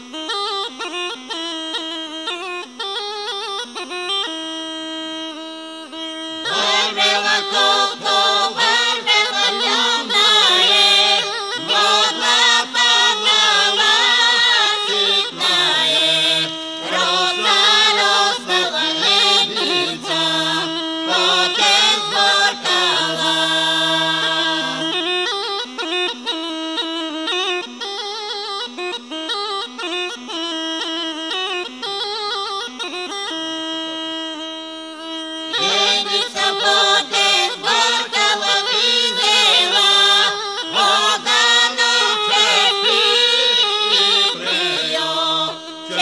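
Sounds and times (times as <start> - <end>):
bagpipe drone and melody: 0.0 - 46.0
folk group singing: 6.5 - 25.0, 35.6 - 46.0.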